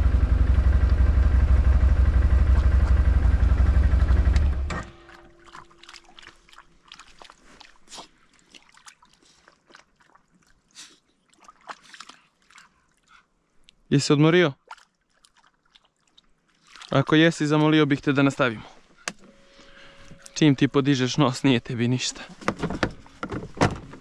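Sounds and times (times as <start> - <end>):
atv engine idling: 0.0 - 5.1
dog splashing in puddle: 2.3 - 3.5, 5.0 - 10.5, 11.3 - 12.7, 14.6 - 17.0.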